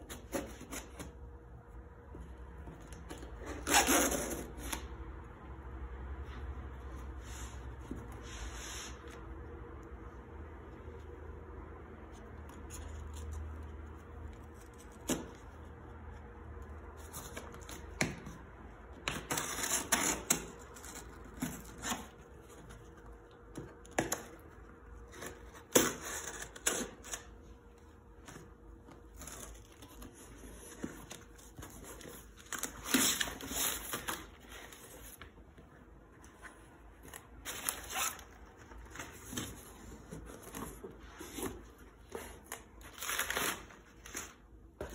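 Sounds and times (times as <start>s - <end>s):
knife slitting packing tape: 19.1s - 22.2s, 25.2s - 27.3s.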